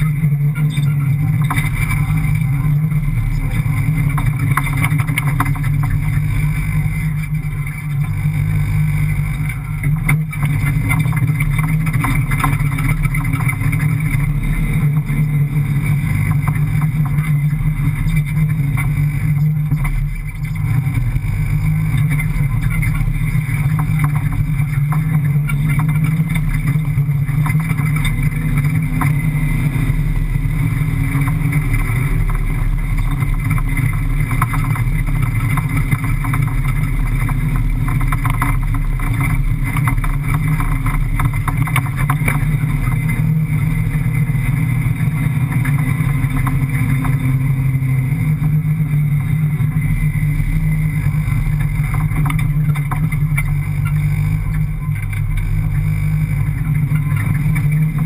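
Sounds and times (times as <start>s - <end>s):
clicks and rattles: 0.0s - 8.3s, 9.2s - 43.5s, 49.2s - 58.0s
car engine under load: 0.0s - 58.0s.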